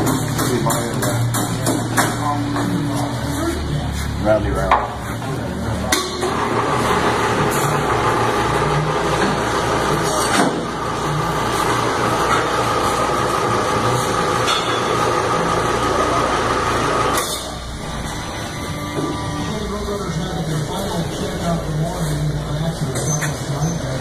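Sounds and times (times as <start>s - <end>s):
machine running: 0.0s - 23.0s.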